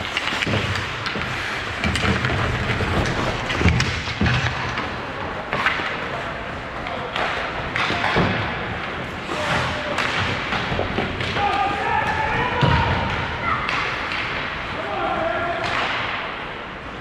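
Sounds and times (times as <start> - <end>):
hockey sticks and puck knocking: 0.0 - 14.6, 15.6 - 16.4
rink background noise: 0.0 - 17.0.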